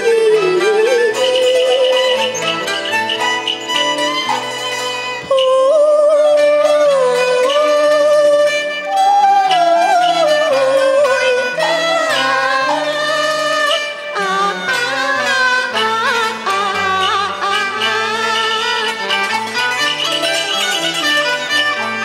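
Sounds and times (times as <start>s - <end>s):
woman singing opera: 0.0s - 2.1s, 5.3s - 13.7s
traditional ensemble with bowed strings: 0.0s - 22.0s.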